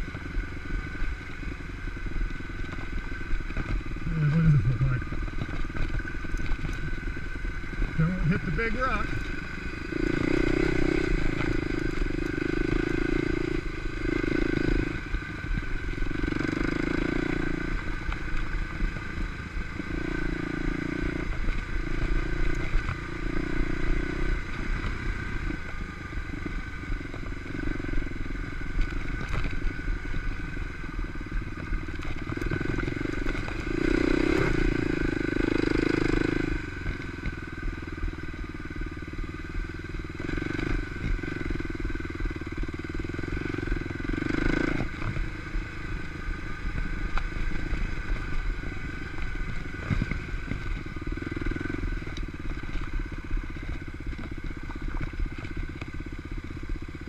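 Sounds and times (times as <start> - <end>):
dirt bike engine revving: 3.1 - 25.6, 32.2 - 38.9, 39.9 - 54.2.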